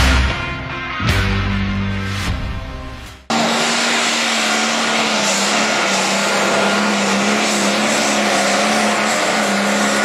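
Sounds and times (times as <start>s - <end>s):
heavy rushing noise: 2.1s - 10.0s
pulling engine at full throttle: 3.2s - 10.0s.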